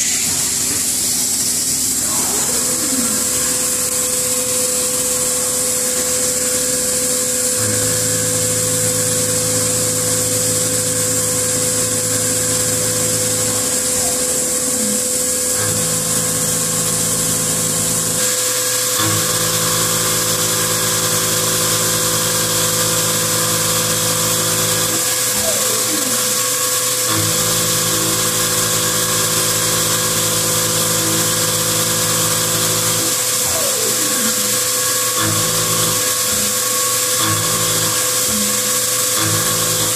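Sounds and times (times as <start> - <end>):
coolant spraying hiss: 0.0 - 8.8
low machine hum: 0.0 - 39.9
milling machine whine: 0.0 - 39.9.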